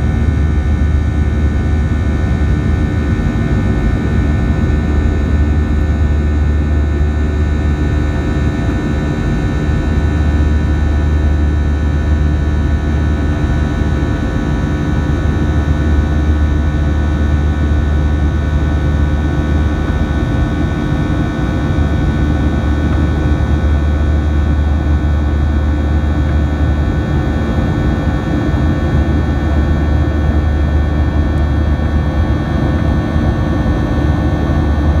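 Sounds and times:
jet engine drone in cabin: 0:00.0 - 0:35.0.

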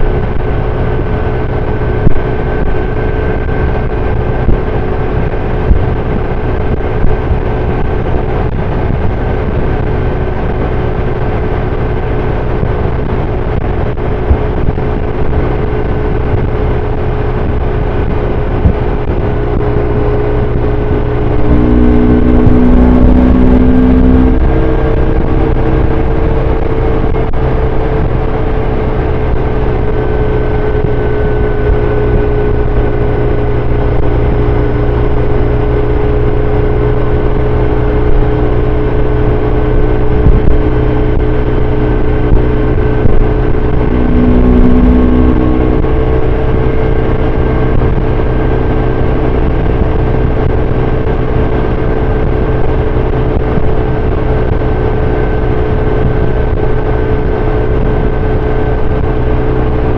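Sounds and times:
motorcycle engine running: 0:00.0 - 0:59.9
wind noise: 0:00.0 - 0:59.9
low extra tone: 0:16.4 - 0:59.9.

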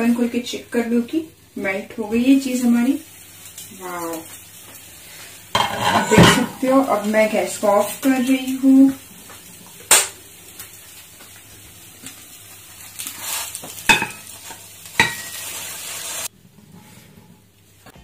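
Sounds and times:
frying pan sizzling: 0:00.0 - 0:18.0
knocks and scrape in pan: 0:05.5 - 0:06.7, 0:13.5 - 0:15.4.

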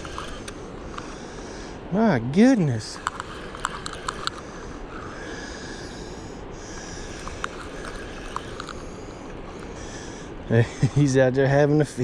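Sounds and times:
reel clicks: 0:00.0 - 0:01.7, 0:02.6 - 0:10.2
fishing reel whirring: 0:00.0 - 0:01.9, 0:02.5 - 0:10.3
steady rushing noise: 0:00.0 - 0:12.0.

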